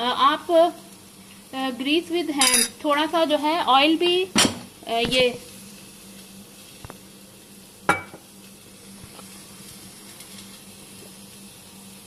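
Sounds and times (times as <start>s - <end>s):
gas burner hissing: 0.0s - 12.0s.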